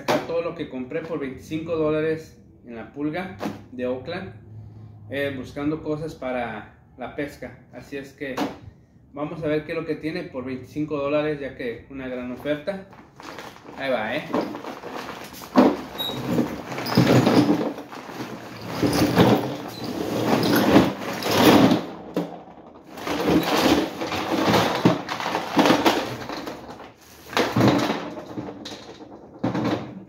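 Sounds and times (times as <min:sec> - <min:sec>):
plastic bag rustling: 0:12.9 - 0:22.0, 0:22.8 - 0:29.3
metal sinkers clattering onto table: 0:14.4 - 0:30.0.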